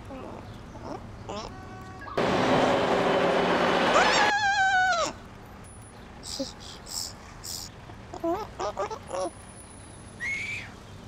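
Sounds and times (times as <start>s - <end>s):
high wavering cries: 3.9s - 5.2s.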